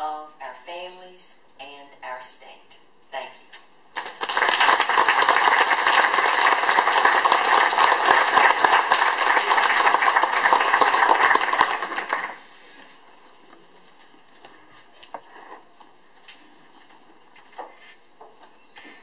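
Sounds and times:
audience applause: 4.0s - 12.7s.

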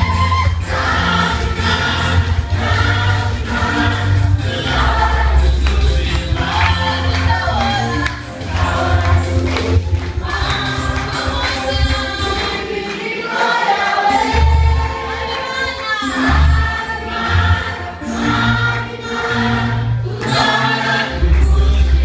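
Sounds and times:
low bass notes: 0.0s - 11.1s, 21.1s - 22.0s
congregation singing in chorus: 0.0s - 22.0s.

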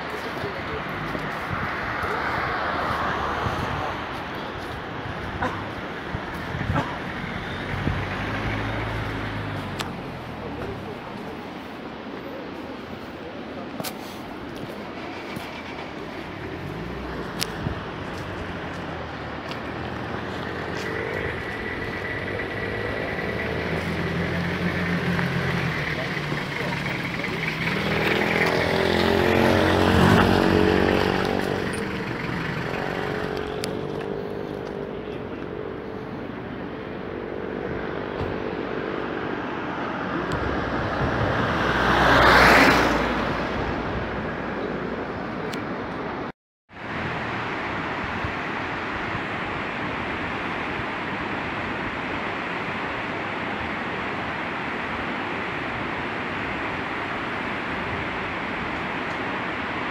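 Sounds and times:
vehicle engine passing by: 0.0s - 11.1s, 14.7s - 45.1s
river rushing over rocks: 40.6s - 59.9s.

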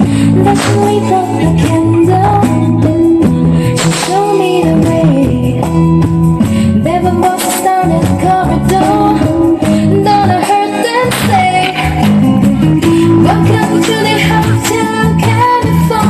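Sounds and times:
woman singing: 0.0s - 16.0s
heavy bass line: 7.9s - 16.0s.

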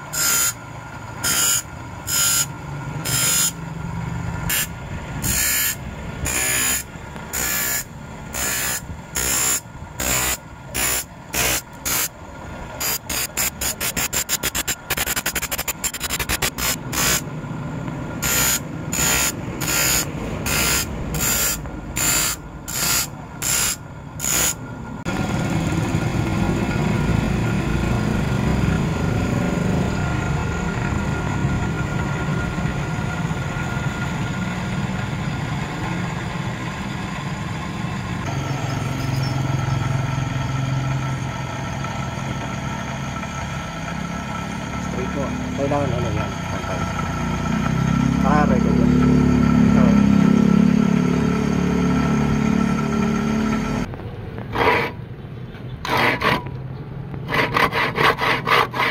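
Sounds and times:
grinding disc rasping on saw teeth: 0.1s - 0.6s, 1.2s - 3.6s, 4.4s - 12.1s, 12.8s - 17.3s, 18.2s - 24.6s, 54.5s - 55.0s, 55.8s - 56.6s, 57.2s - 58.9s
electric motor whining: 1.2s - 3.6s, 4.5s - 12.1s, 12.8s - 17.3s, 18.2s - 24.6s.

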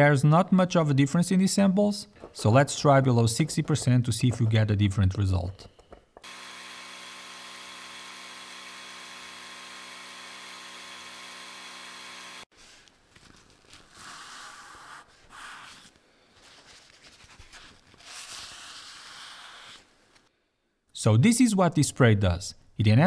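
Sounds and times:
laser engraver humming: 6.2s - 12.5s.

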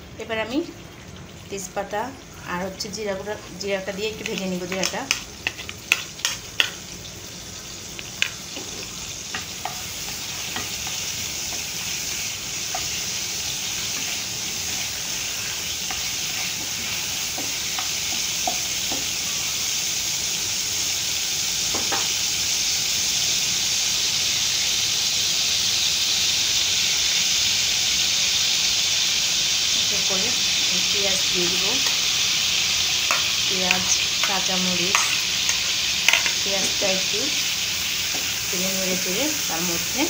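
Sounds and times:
spices sizzling in hot oil: 0.0s - 40.0s
utensil clicking against pan: 4.2s - 6.8s.

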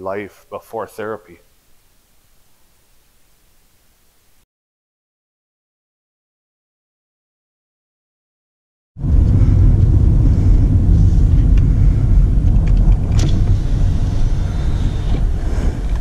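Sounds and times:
road and engine rumble: 9.0s - 16.0s.

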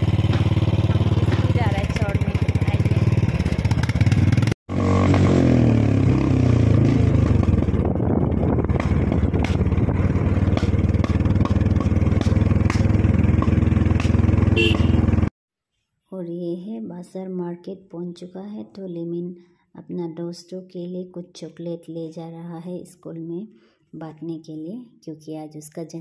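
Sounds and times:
motorcycle engine running: 0.0s - 15.3s.

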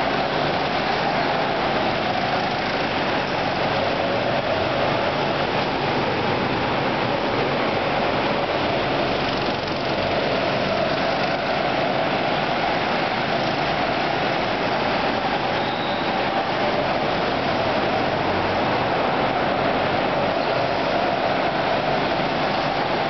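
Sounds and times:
go-kart engines droning: 0.0s - 23.0s.

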